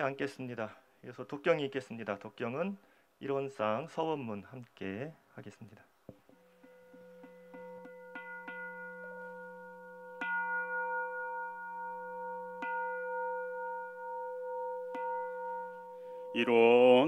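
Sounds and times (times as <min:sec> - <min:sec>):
prayer bell light taps: 0:06.1 - 0:11.8.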